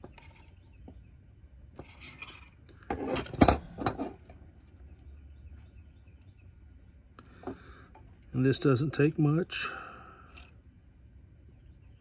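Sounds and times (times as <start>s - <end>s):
metal tools clattering on workbench: 2.1s - 4.2s.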